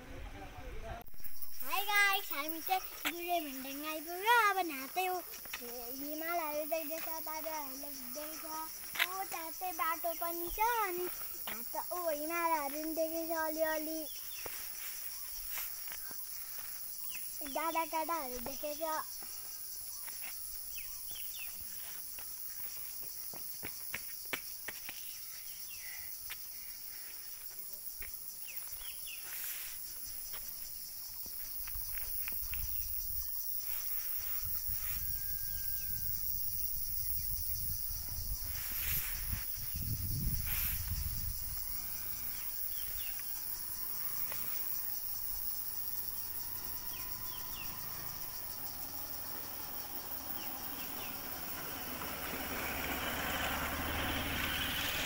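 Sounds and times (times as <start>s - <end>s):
insects droning: 0.0s - 55.0s
wind rumbling on microphone: 34.4s - 41.8s.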